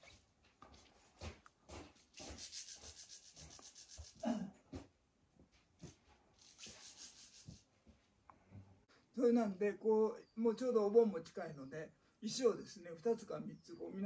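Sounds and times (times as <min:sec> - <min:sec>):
quick scratching: 0:02.0 - 0:04.3, 0:06.4 - 0:07.7
rubbing and scraping on rock: 0:02.2 - 0:04.2.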